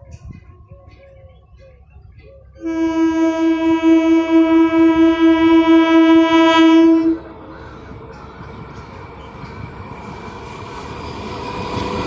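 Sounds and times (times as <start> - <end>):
low rumble of train: 0.0 - 12.0
train horn blast: 2.6 - 7.4.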